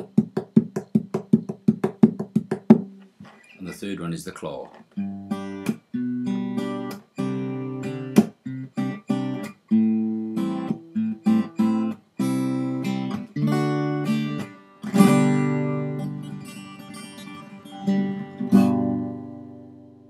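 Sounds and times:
slap on guitar strings: 0.0s - 3.0s, 5.6s - 5.8s, 6.9s - 7.1s, 8.1s - 8.4s
acoustic guitar fingerpicking: 0.0s - 3.7s, 4.7s - 20.0s.

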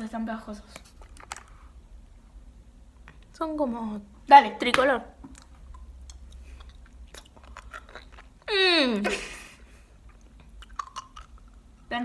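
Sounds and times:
wet mouth clicks: 5.2s - 8.5s, 10.0s - 11.7s
person chewing candy: 5.3s - 8.6s, 9.9s - 11.9s.

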